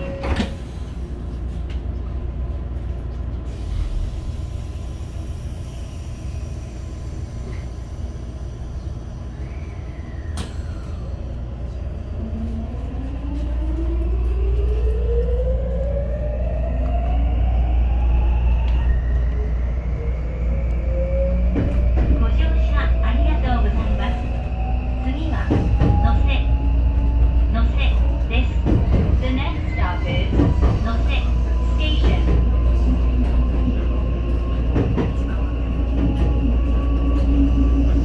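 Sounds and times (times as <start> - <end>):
electric train humming: 0.0 - 38.0
train inverter whine: 0.0 - 38.0.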